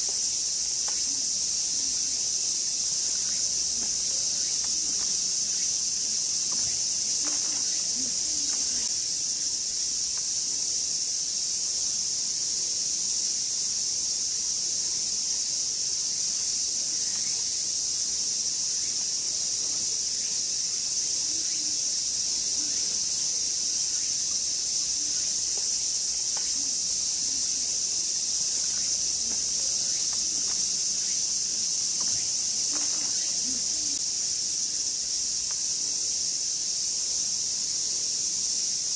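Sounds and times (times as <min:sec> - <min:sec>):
cicadas shrilling: 0:00.0 - 0:38.9.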